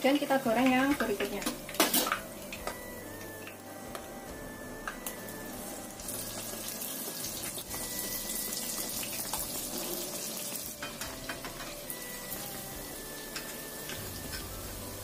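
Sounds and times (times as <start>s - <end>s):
batter sizzling in hot oil: 5.0s - 15.0s.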